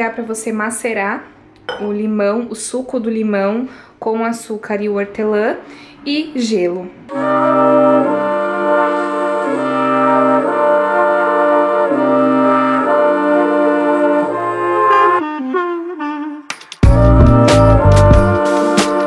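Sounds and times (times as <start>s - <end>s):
slow chords over bass line: 7.1s - 15.7s, 16.9s - 18.6s.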